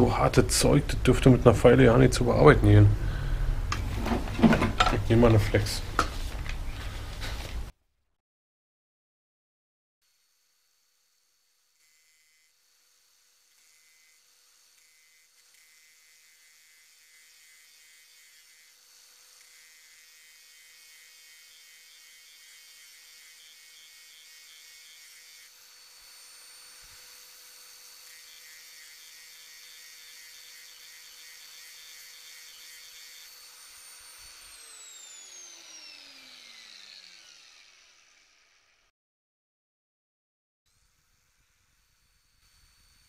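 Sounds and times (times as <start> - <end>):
angle grinder whining: 10.1 - 38.9, 40.7 - 43.0.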